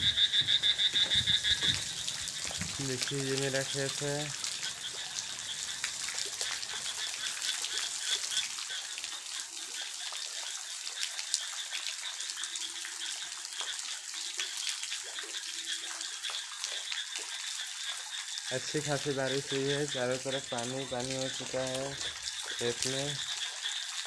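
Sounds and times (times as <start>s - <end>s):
small ticks of raindrops: 0.0s - 24.0s
light rain falling on water: 0.1s - 24.0s.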